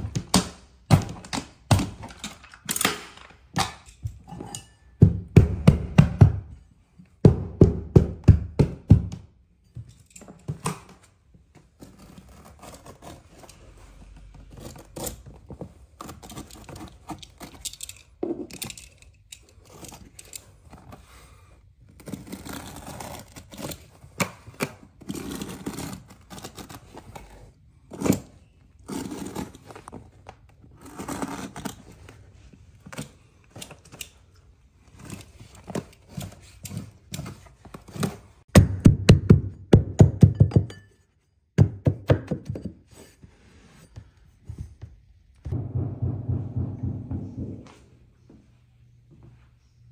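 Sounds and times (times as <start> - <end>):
sharp knock: 45.5 - 47.9.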